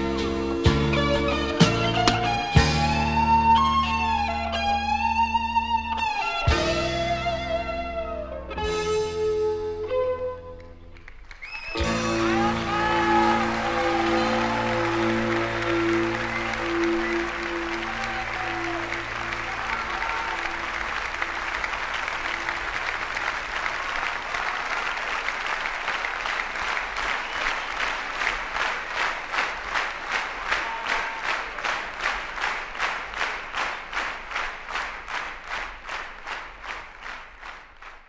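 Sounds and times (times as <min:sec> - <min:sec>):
rhythmic clapping in unison: 0:01.6 - 0:03.2, 0:10.6 - 0:38.0
band's held chord: 0:01.6 - 0:03.5
audience applauding: 0:01.9 - 0:03.2, 0:10.6 - 0:38.0.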